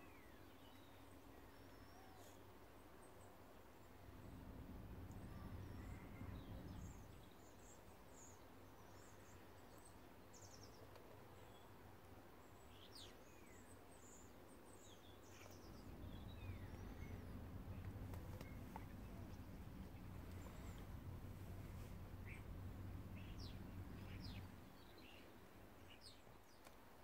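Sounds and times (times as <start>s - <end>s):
distant birds chirping: 0.0s - 26.8s
low steady rumble: 3.7s - 10.8s, 14.8s - 26.4s.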